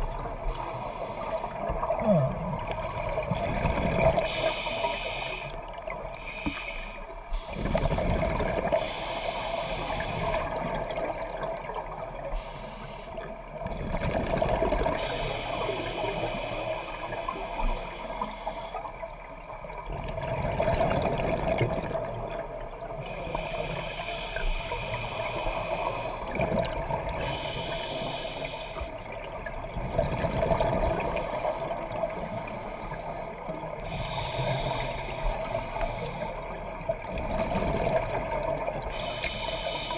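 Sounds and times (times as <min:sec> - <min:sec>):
regulator inhalation hiss: 0:00.5 - 0:01.7, 0:04.2 - 0:05.6, 0:06.2 - 0:08.0, 0:08.8 - 0:13.2, 0:15.0 - 0:19.3, 0:23.0 - 0:26.4, 0:27.2 - 0:29.0, 0:30.8 - 0:36.5, 0:38.9 - 0:39.9
gurgling exhaled bubbles: 0:01.6 - 0:04.4, 0:07.6 - 0:08.8, 0:13.6 - 0:15.0, 0:19.8 - 0:22.9, 0:26.3 - 0:27.3, 0:29.0 - 0:32.1, 0:36.8 - 0:38.9.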